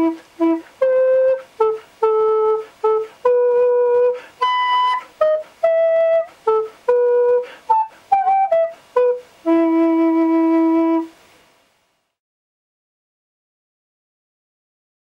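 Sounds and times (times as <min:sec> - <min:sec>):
recorder playing a melody: 0:00.0 - 0:11.1.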